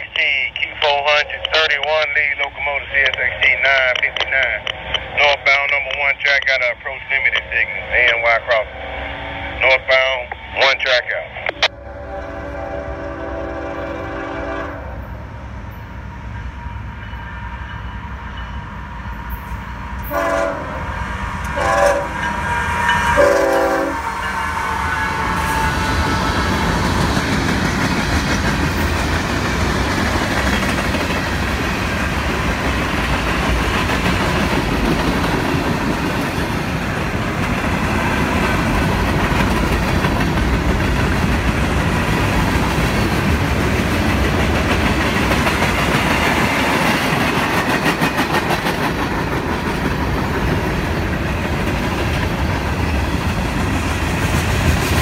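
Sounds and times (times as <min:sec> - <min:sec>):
freight train cars rumbling past: 0:00.0 - 0:55.0
locomotive horn blasts: 0:11.7 - 0:15.1, 0:20.0 - 0:20.9, 0:21.5 - 0:26.4.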